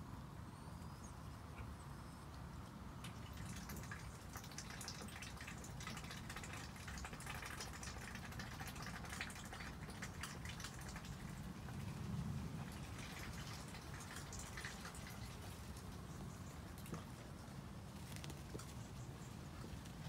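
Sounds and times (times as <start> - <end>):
low background hum: 0.0 - 20.0
raindrops ticking and dripping: 3.0 - 17.2.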